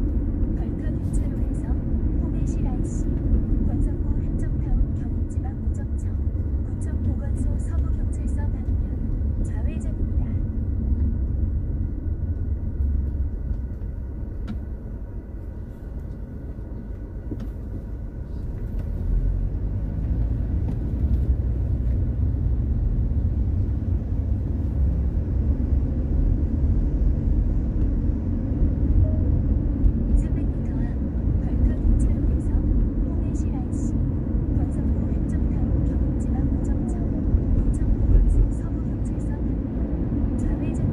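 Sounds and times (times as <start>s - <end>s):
car road and engine rumble: 0.0s - 40.9s.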